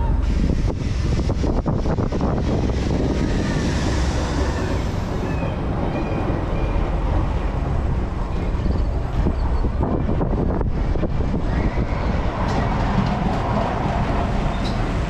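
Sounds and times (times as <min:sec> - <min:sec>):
amusement ride low rumble: 0:00.0 - 0:15.0
wind buffeting microphone: 0:00.0 - 0:15.0.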